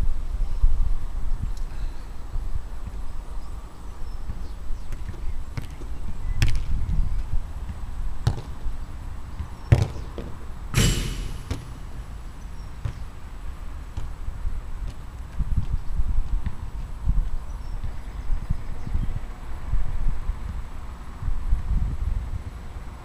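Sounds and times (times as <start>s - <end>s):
wind rumble on microphone: 0.0s - 10.1s, 14.0s - 23.0s
football thudding: 7.7s - 8.6s, 9.7s - 13.1s
ringing ball impact: 10.8s - 12.2s.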